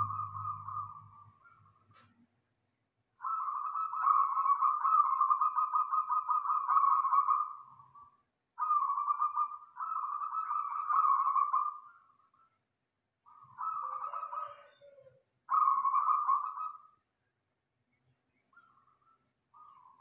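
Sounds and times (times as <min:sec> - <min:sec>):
dove cooing in rolling bouts: 0:00.0 - 0:01.6, 0:03.2 - 0:11.9, 0:13.3 - 0:17.0.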